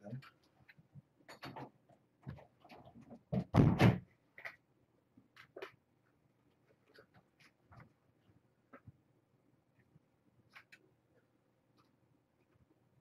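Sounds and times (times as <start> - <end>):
kittens scratching and knocking: 0.2 - 4.6.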